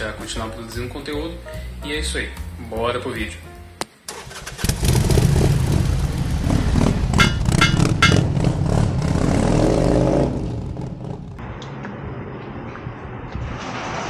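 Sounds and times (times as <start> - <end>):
motorcycle engine rumbling: 4.1 - 13.3
sharp hits: 6.8 - 8.4.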